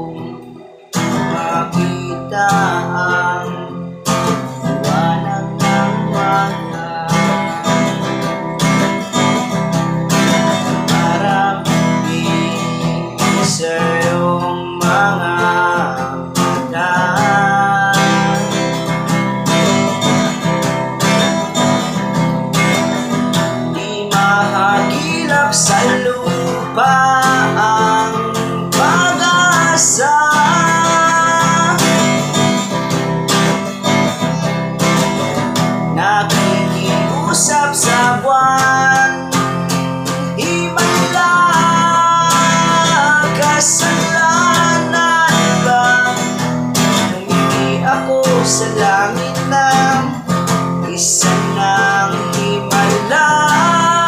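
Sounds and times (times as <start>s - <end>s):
acoustic guitar strumming: 0.0s - 54.0s
man singing: 0.0s - 54.0s.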